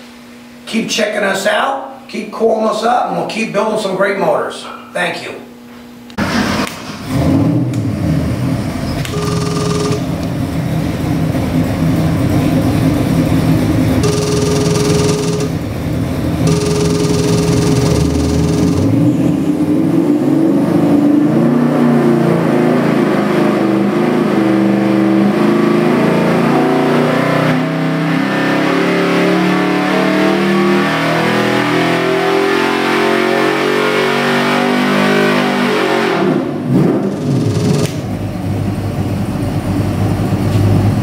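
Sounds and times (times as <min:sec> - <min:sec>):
engine revving at full throttle: 0:16.4 - 0:38.2.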